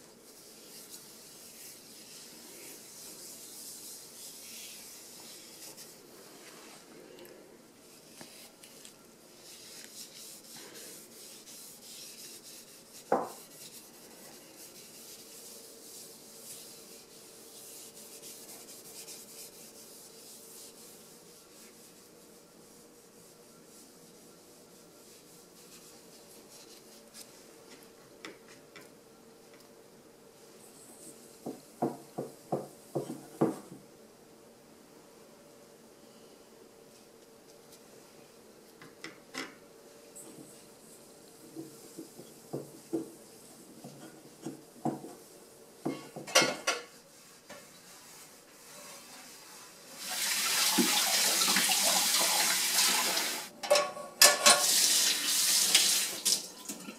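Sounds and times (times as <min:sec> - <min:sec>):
paper towel wiping frying pan: 0:00.0 - 0:06.9, 0:07.8 - 0:27.5, 0:46.7 - 0:53.4.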